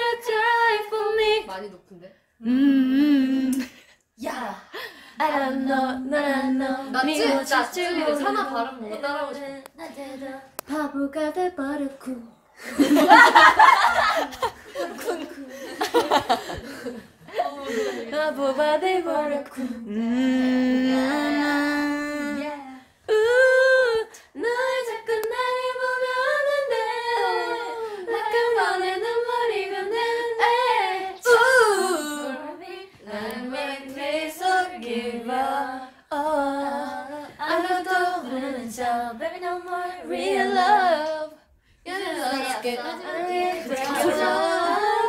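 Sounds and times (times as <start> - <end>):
women singing a cappella: 0.0 - 1.8, 2.4 - 45.0
singers breathing: 4.7 - 5.2, 15.5 - 18.2.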